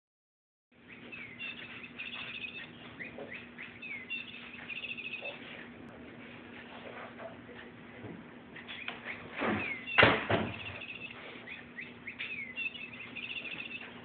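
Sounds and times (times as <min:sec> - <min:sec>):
bird-like chirps and trills: 0:00.8 - 0:05.8, 0:08.5 - 0:14.0.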